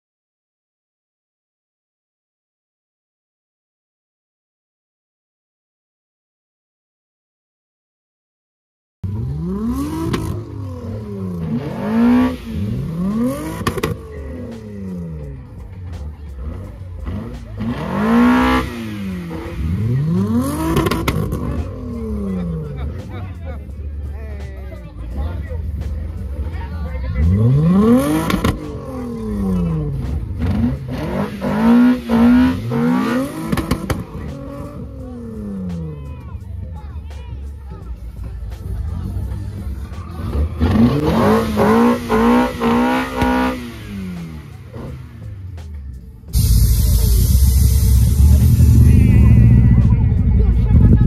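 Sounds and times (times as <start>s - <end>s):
car engine revving: 9.0s - 36.6s, 37.5s - 51.0s
exhaust cracks: 27.3s - 34.7s, 46.3s - 51.0s.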